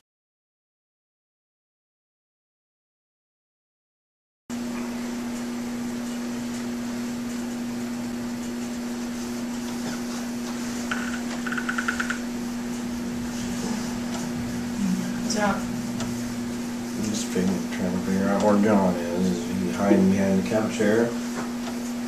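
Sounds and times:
electrical hum with hiss: 0:04.5 - 0:22.0.

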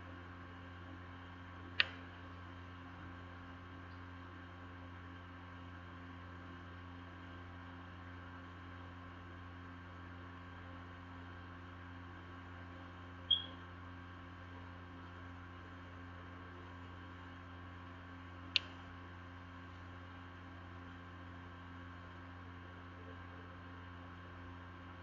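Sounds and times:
low electrical hum: 0:00.0 - 0:25.0
sharp click: 0:01.8 - 0:02.0, 0:13.3 - 0:13.5, 0:18.5 - 0:18.8.

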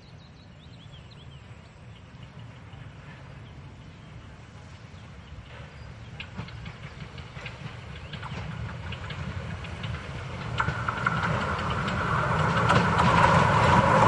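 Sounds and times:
steam train rumbling: 0:01.0 - 0:14.0
train wheels clicking: 0:05.4 - 0:14.0.

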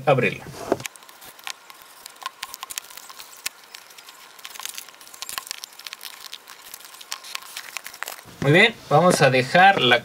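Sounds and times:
cardboard box scratching and crackling: 0:00.4 - 0:08.4.

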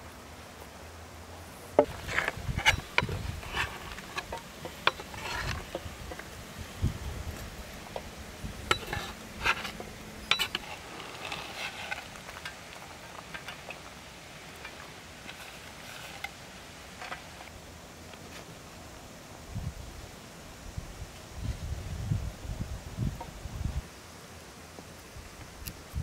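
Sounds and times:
metal skimmer clinking on bowl: 0:08.7 - 0:10.7.

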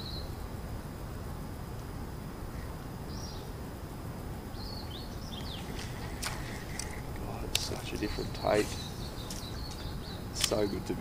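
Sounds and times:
low outdoor background noise: 0:00.0 - 0:11.0.

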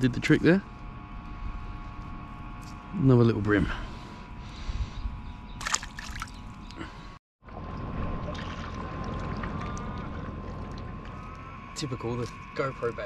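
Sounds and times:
riverbank ambience: 0:05.3 - 0:13.0.

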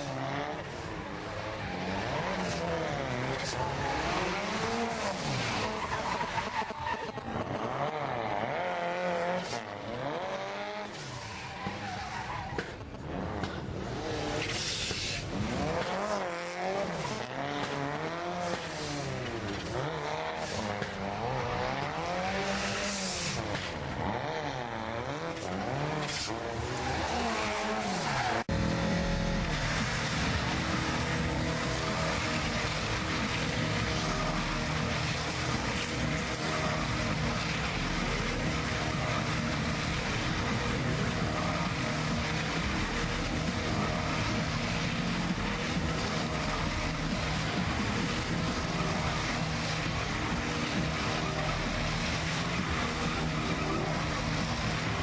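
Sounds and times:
tyre squeal on tarmac: 0:00.0 - 0:23.8, 0:25.0 - 0:28.5
car engine revving: 0:00.0 - 0:55.0
car engine running steadily: 0:00.0 - 0:55.0.

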